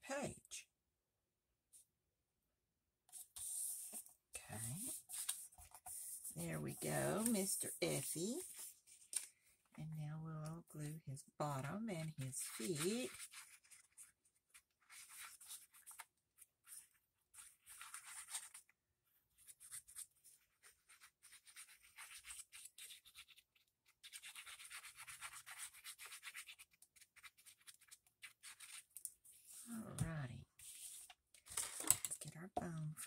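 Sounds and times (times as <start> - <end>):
scratching and rubbing on paper: 3.1 - 9.3, 11.6 - 29.8, 30.6 - 32.1.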